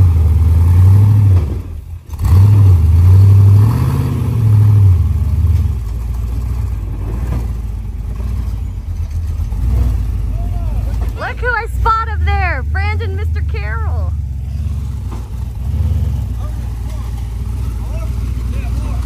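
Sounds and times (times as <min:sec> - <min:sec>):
engine revving loudly: 0:00.0 - 0:05.5, 0:11.2 - 0:19.0.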